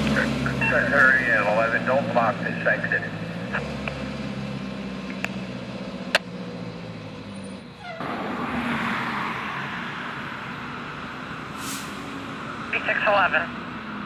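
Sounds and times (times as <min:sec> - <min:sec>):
low engine hum: 0:00.0 - 0:08.6.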